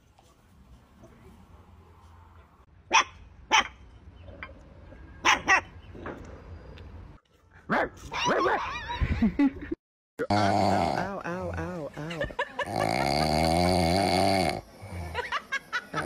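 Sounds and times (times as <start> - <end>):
dog barking: 2.9 - 3.8, 5.2 - 5.7, 7.7 - 8.7.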